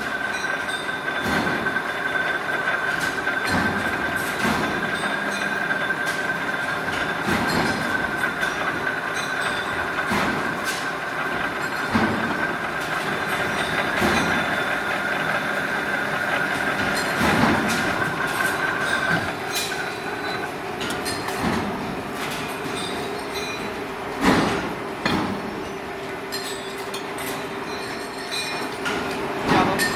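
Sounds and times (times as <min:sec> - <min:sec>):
high machine whine: 0:00.0 - 0:24.2
machine running noise: 0:00.0 - 0:29.9
metal clanks: 0:06.9 - 0:25.5.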